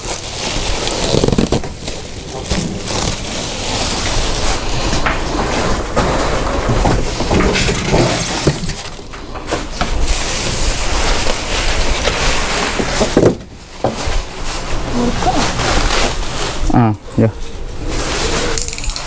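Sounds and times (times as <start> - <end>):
plastic wrap crinkling: 0.0 - 7.3, 8.1 - 19.0
foam blocks being handled: 0.0 - 19.0.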